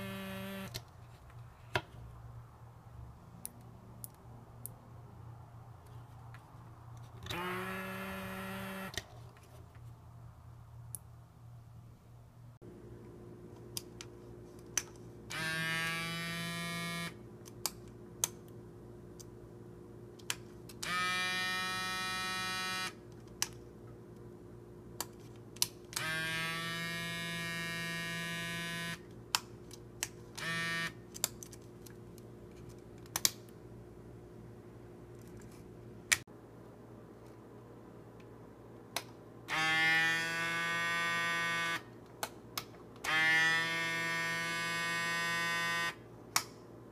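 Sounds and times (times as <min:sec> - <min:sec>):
miniature compressor whirring: 0:00.0 - 0:00.7, 0:07.3 - 0:09.0
faint steady hum: 0:00.0 - 0:39.6.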